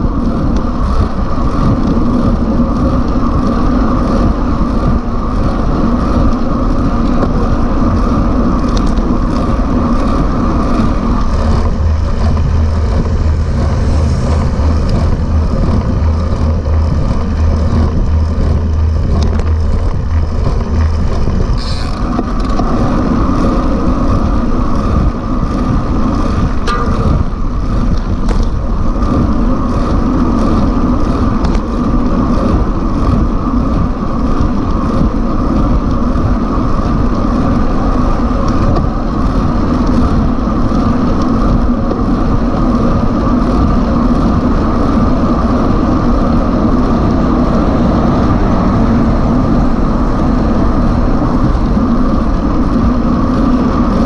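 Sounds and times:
deep low hum: 0.0 - 54.0
wind and road noise: 0.0 - 54.0.

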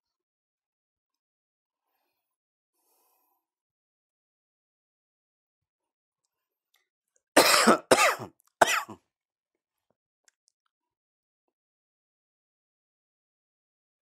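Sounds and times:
man coughing: 7.4 - 9.0.

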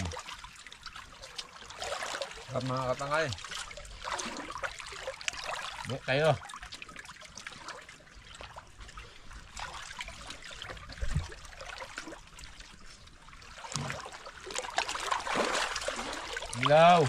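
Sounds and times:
water lapping among rocks: 0.0 - 17.0.

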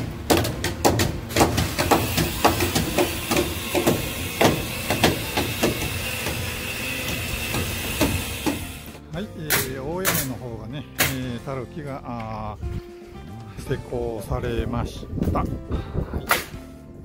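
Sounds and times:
hammers knocking on timber: 0.3 - 8.8.

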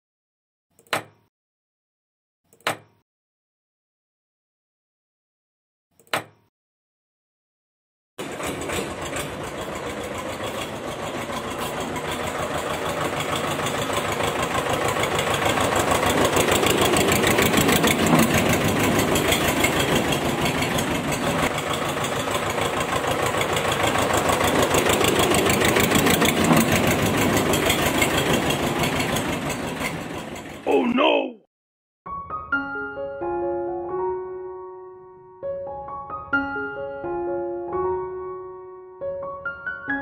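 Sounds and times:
diesel tractor engine knocking: 8.2 - 30.6.

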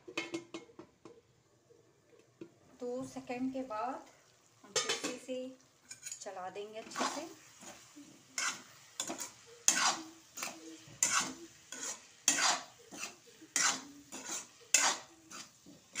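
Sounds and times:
metal spatula scraping metal pan: 5.9 - 16.0.

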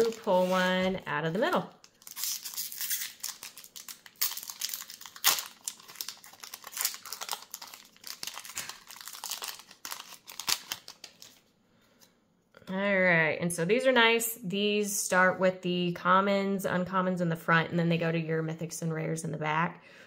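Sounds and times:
foil wrapper tearing and crinkling: 0.0 - 0.8, 1.4 - 11.4.

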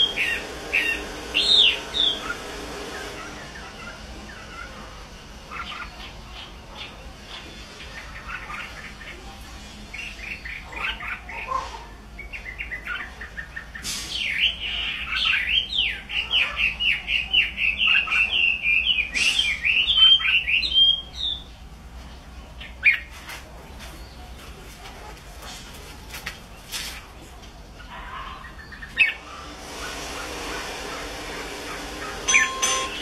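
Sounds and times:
bird singing: 0.0 - 2.4, 12.2 - 21.6, 31.7 - 33.0.

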